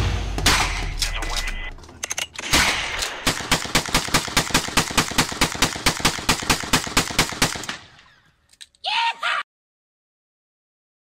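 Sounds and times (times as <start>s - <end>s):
rifle firing rapidly: 2.4s - 7.8s.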